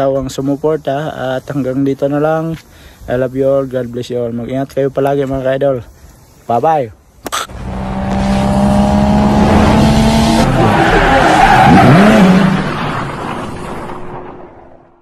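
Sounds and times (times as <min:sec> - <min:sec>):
car engine running: 0:07.5 - 0:10.8
tyres screeching: 0:10.2 - 0:12.6.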